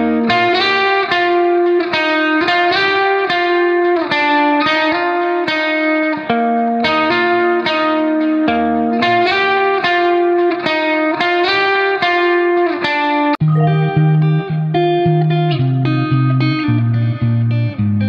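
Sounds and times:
instrumental music with held notes: 0.0s - 18.0s.

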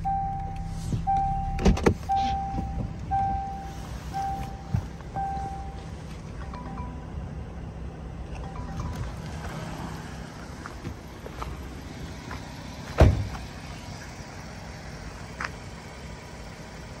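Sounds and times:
car door shutting: 0.3s - 6.2s, 12.8s - 13.4s.

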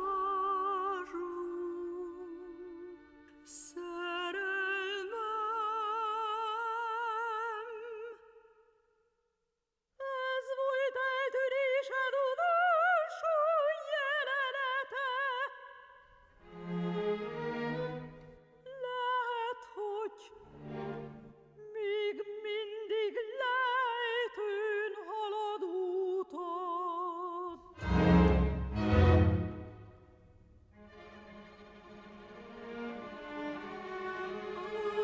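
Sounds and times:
soprano singing operatic lament: 0.0s - 8.4s, 10.0s - 15.9s, 18.6s - 21.0s, 21.6s - 28.2s
low strings: 27.8s - 30.0s.

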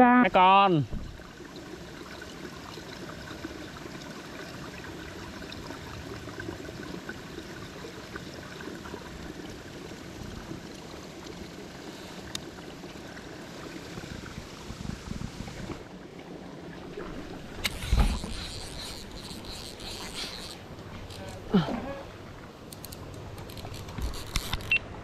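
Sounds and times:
outdoor background hiss: 0.0s - 25.0s
fishing reel clicks and handling: 17.6s - 21.4s, 22.7s - 24.8s.

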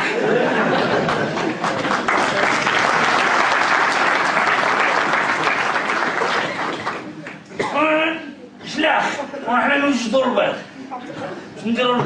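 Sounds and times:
audience applauding: 0.5s - 7.5s.

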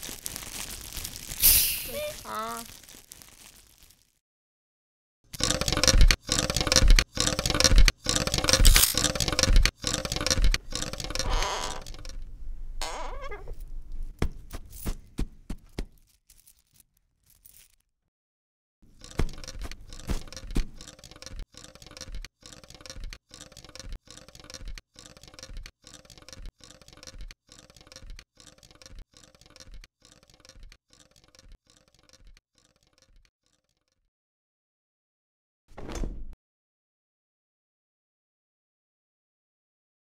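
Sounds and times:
rapid clattering and clinking: 5.4s - 12.2s, 18.9s - 33.8s.

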